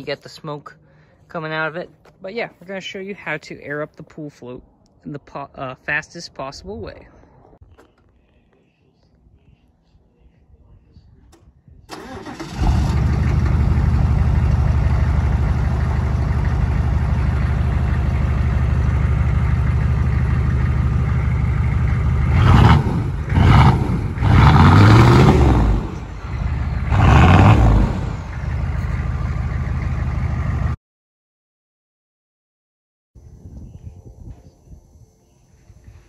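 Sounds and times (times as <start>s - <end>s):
diesel engine idling and revving: 11.9s - 30.8s.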